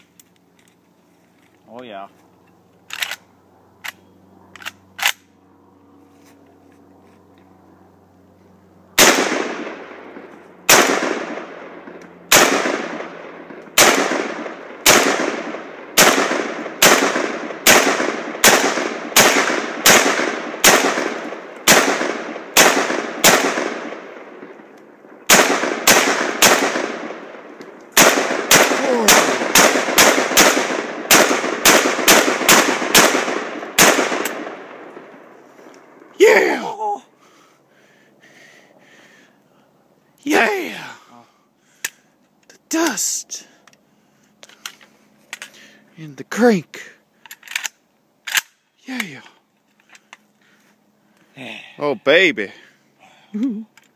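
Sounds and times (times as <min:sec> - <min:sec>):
rifle shots echoing: 0:09.0 - 0:36.0.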